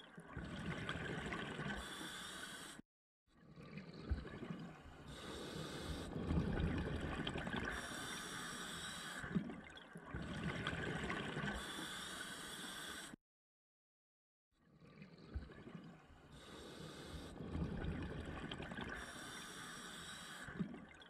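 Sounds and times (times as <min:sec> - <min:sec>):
regulator inhalation hiss: 0:01.8 - 0:02.8, 0:07.8 - 0:09.2, 0:11.6 - 0:13.2, 0:19.0 - 0:20.5
regulator bubbles rushing: 0:06.1 - 0:07.8.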